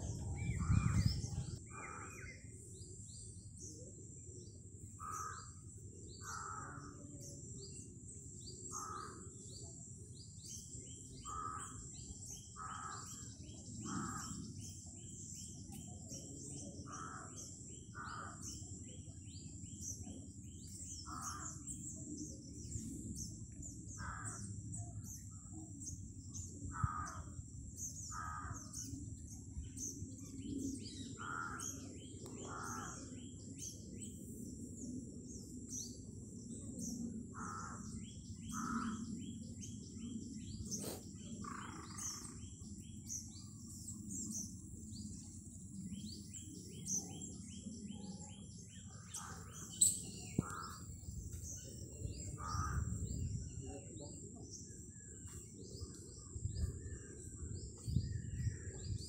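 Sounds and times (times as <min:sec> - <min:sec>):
small birds chirping: 0:00.0 - 0:59.0
crows cawing: 0:06.2 - 0:06.9, 0:24.0 - 0:24.4, 0:26.7 - 0:27.3, 0:28.1 - 0:28.7, 0:32.4 - 0:33.1, 0:37.4 - 0:37.9, 0:38.5 - 0:39.0.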